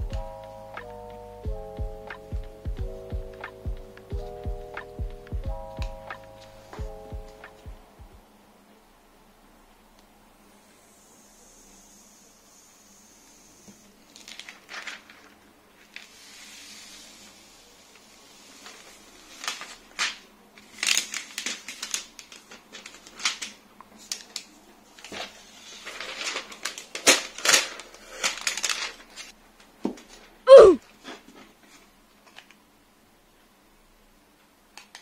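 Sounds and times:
plastic packaging crinkling: 0:14.1 - 0:16.1, 0:18.6 - 0:29.4
plastic film peeling: 0:14.1 - 0:16.3, 0:18.5 - 0:29.4.

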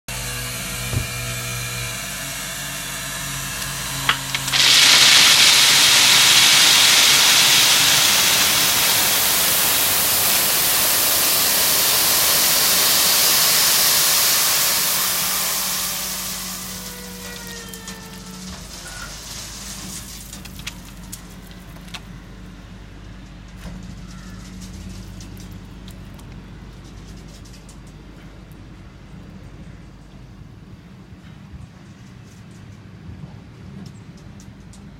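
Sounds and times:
gravel sliding from truck bed: 0:04.1 - 0:22.0.

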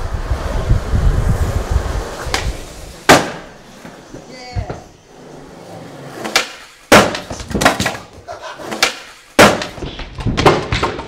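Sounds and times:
skateboard wheels rolling: 0:00.0 - 0:11.0
skateboard clacks and slaps: 0:02.2 - 0:04.9, 0:06.0 - 0:11.0.

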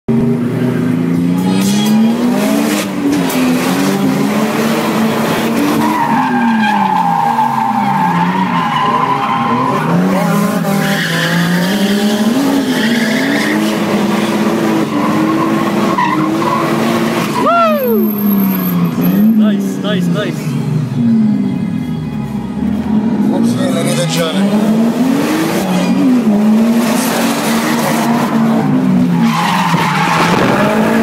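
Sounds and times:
car engine revving: 0:00.1 - 0:21.5, 0:22.5 - 0:31.0
tyres squealing: 0:26.9 - 0:31.0.

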